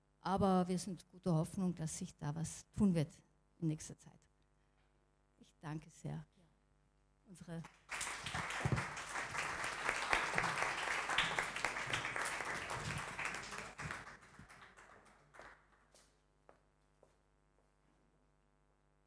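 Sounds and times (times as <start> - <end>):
audience applauding: 7.8 - 15.7.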